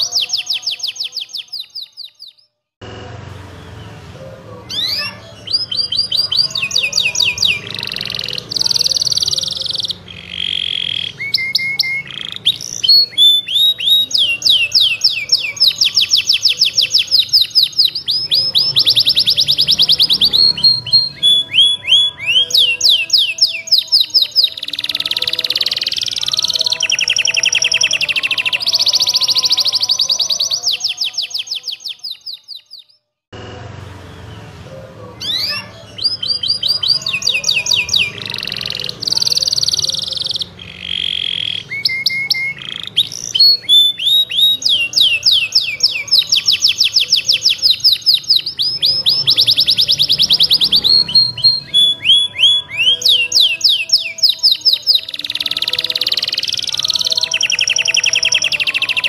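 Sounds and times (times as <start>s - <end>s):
canary singing in trills: 0.0s - 59.0s.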